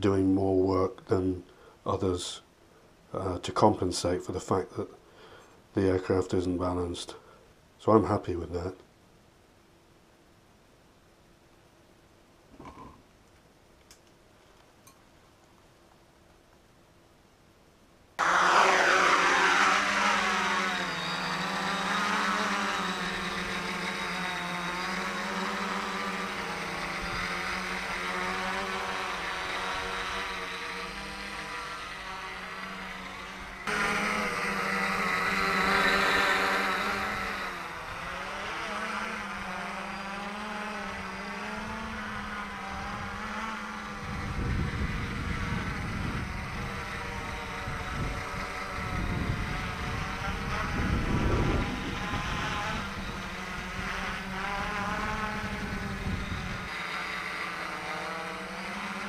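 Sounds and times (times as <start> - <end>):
quadcopter propellers buzzing: 18.2 - 59.0.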